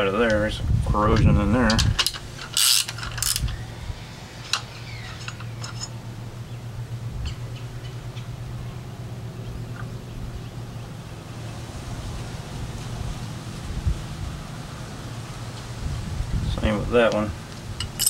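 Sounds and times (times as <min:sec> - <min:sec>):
steady low hum: 0:00.0 - 0:18.0
hand ratchet clicking: 0:02.0 - 0:03.6.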